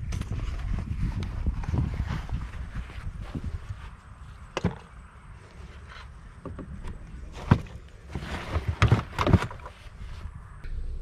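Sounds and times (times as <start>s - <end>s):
rustling: 0.0s - 6.3s
items knocking into car boot: 7.3s - 9.7s.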